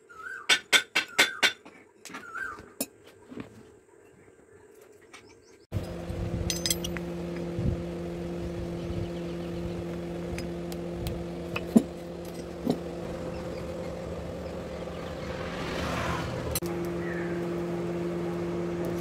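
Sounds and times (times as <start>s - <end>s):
electric motor humming: 5.7s - 19.0s.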